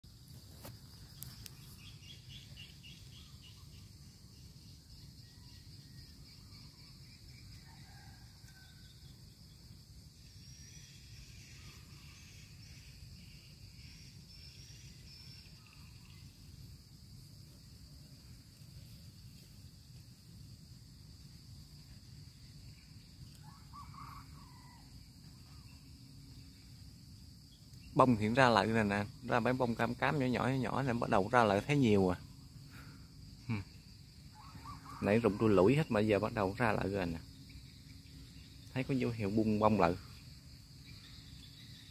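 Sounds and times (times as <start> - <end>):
high-pitched insect trill: 0.0 - 41.9
bird chirps: 0.9 - 16.6.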